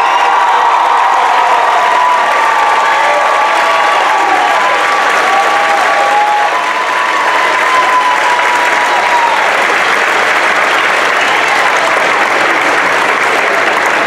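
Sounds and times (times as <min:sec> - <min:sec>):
person cheering: 0:00.0 - 0:09.6
audience applauding: 0:00.0 - 0:14.0.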